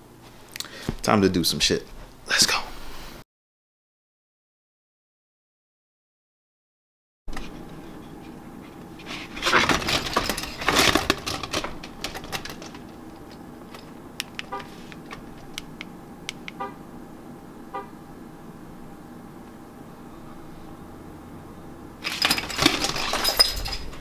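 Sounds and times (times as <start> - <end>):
car horn chirps: 14.5 - 14.8, 16.5 - 16.9, 17.7 - 18.0
keys clicking and jingling: 22.0 - 24.0.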